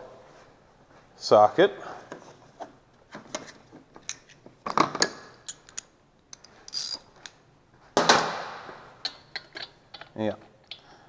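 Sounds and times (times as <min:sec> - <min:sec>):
steel sockets clinking and rattling: 0:04.0 - 0:07.4.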